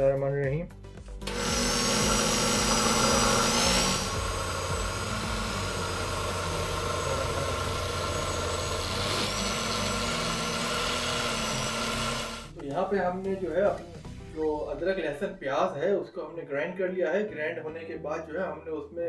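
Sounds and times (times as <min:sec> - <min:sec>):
electric mixer grinder humming: 0:01.2 - 0:12.6.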